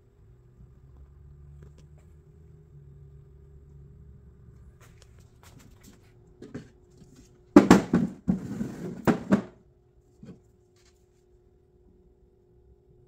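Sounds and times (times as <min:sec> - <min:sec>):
faint steady hum: 0:00.0 - 0:13.0
wood knocking and scraping: 0:05.6 - 0:09.6.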